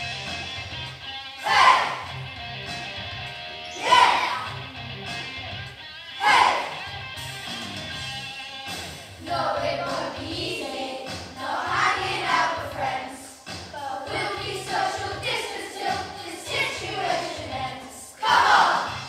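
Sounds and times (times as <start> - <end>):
backing track with bass line: 0.0 - 19.0
children singing: 1.4 - 2.0, 3.7 - 4.4, 9.2 - 19.0.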